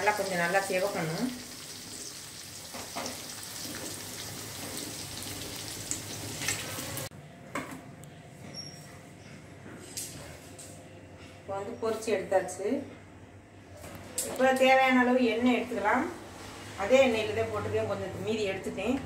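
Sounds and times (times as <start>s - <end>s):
food sizzling in hot oil: 0.0s - 7.1s.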